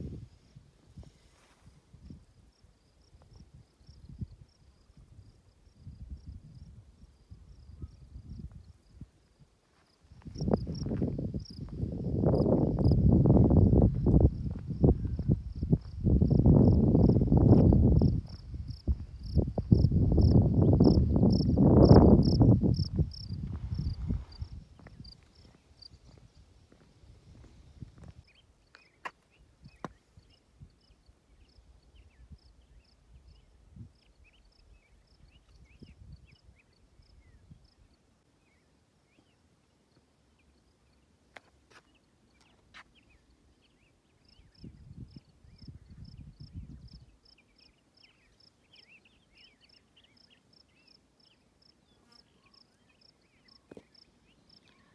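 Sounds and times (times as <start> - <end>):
wind buffeting microphone: 3.3 - 9.1, 10.2 - 28.2, 44.4 - 47.2
high insect-like chirps: 14.0 - 26.4
small birds chirping: 40.3 - 54.9.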